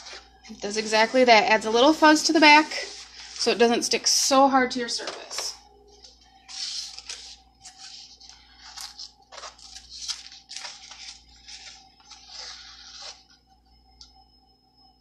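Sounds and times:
plastic sheet crinkling: 1.9 - 3.8, 6.4 - 13.3.

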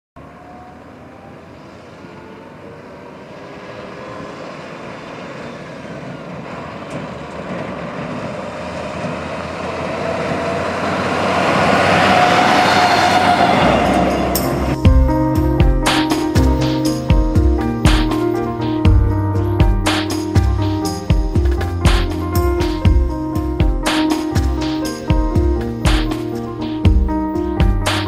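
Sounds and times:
armored bus driving past: 0.2 - 28.0.

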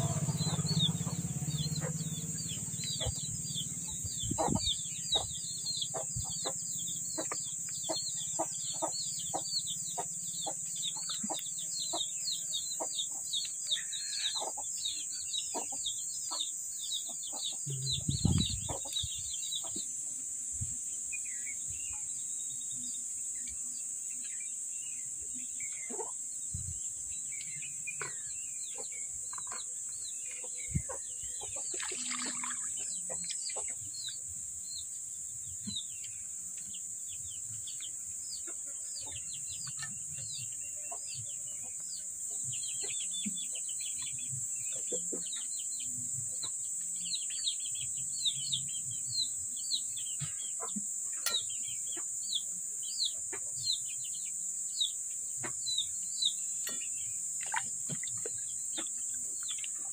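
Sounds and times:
chickens clucking: 0.0 - 13.3, 14.3 - 14.7, 15.5 - 19.9, 25.8 - 26.2, 55.4 - 59.9
small birds chirping rapidly: 0.0 - 59.9.

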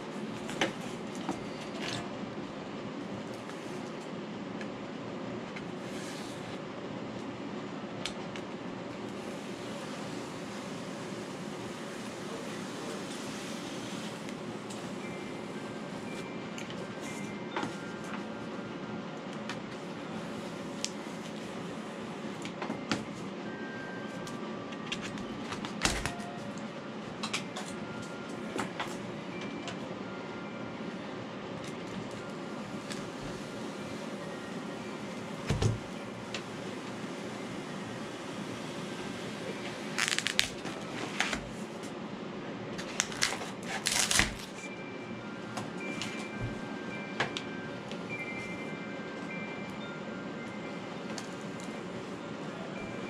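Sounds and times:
steady background hum: 0.0 - 53.0
foam and tools clicking: 40.0 - 40.6.

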